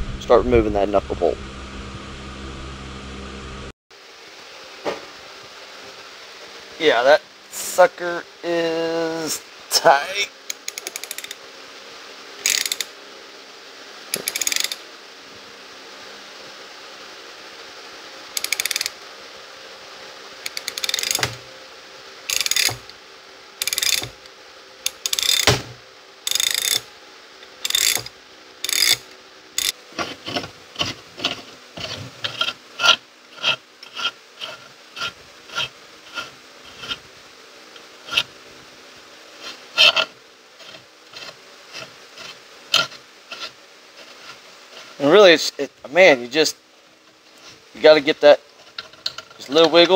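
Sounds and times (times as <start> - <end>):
ratchet wrench clicking: 10.5 - 11.4, 12.4 - 12.9, 14.1 - 14.8, 18.4 - 19.0, 20.4 - 21.4, 22.3 - 23.0, 23.6 - 25.6, 26.3 - 26.9, 27.6 - 29.8.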